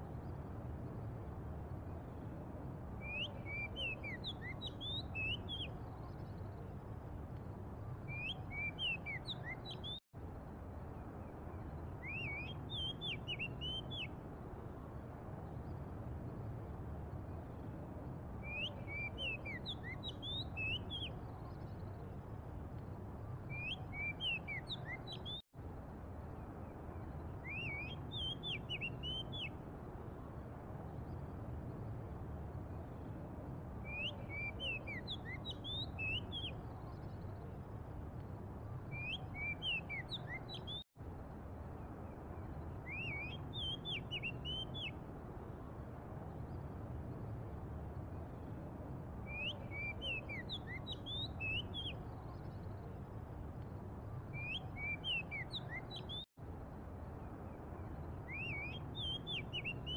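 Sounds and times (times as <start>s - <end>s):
bird singing whistled notes: 3.0s - 6.6s, 8.0s - 10.0s, 11.7s - 14.2s, 18.4s - 22.0s, 23.4s - 25.4s, 27.2s - 29.6s, 33.8s - 37.4s, 38.8s - 40.8s, 42.4s - 45.0s, 49.2s - 52.9s, 54.1s - 56.3s, 57.8s - 59.9s.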